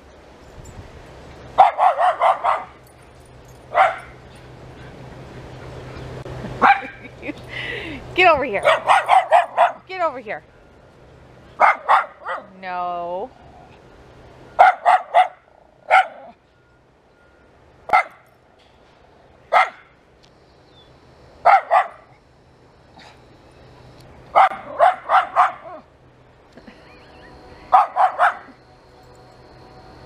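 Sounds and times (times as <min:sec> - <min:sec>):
dog barking: 0:01.6 - 0:02.8, 0:03.7 - 0:04.2, 0:06.6 - 0:07.0, 0:08.6 - 0:09.8, 0:11.6 - 0:12.5, 0:14.6 - 0:16.4, 0:17.9 - 0:18.2, 0:19.5 - 0:19.9, 0:21.4 - 0:22.1, 0:24.3 - 0:25.9, 0:27.7 - 0:28.6.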